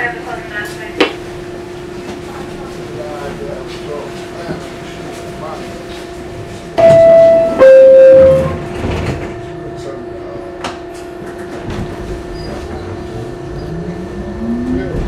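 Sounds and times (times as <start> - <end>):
two-tone door chime: 6.8 - 8.6
steady hum: 11.7 - 15.0.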